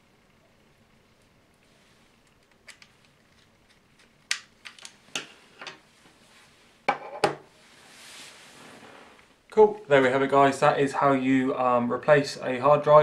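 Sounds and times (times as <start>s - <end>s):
soft rustle: 1.2s - 3.4s, 5.3s - 6.8s, 7.5s - 9.4s.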